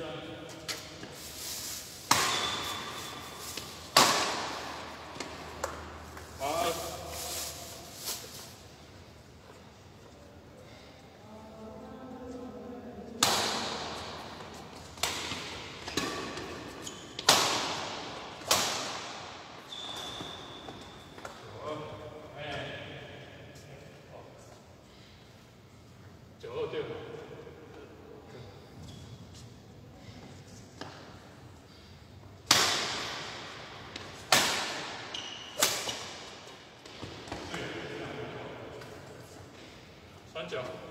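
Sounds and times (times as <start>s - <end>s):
rackets hitting shuttlecock: 2.0s - 6.0s, 13.2s - 14.3s, 14.9s - 20.2s, 32.4s - 37.5s.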